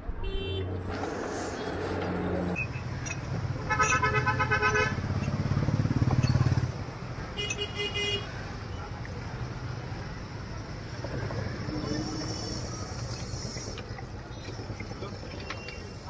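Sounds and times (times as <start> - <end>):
vehicle engine rumbling: 0.0 - 16.0
vehicle horn toots: 0.1 - 0.8, 3.7 - 5.1.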